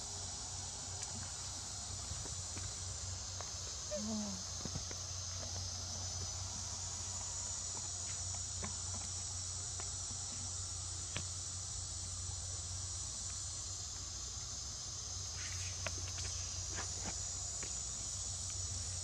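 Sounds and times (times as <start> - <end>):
high-pitched insect chorus: 0.0 - 19.0.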